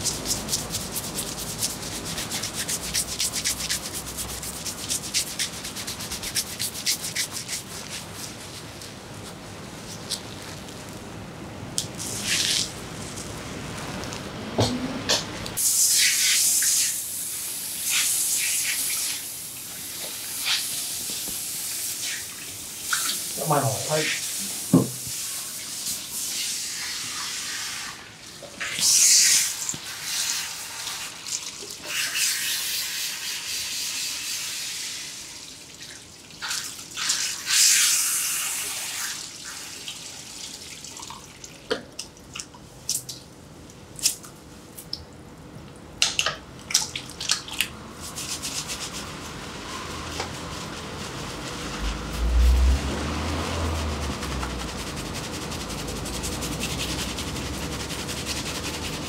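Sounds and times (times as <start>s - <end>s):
fingers rubbing wet hair: 0.0s - 11.0s, 50.2s - 59.0s.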